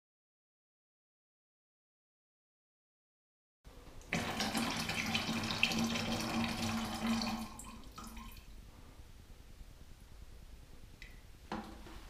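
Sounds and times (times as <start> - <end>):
liquid pouring into water: 4.1 - 8.5.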